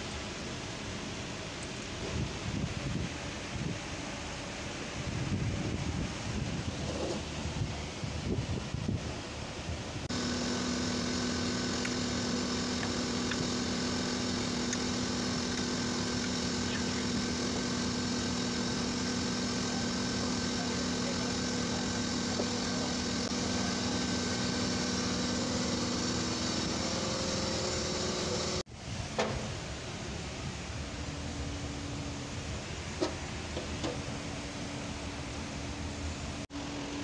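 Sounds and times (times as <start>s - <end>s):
machine humming: 10.1s - 28.6s.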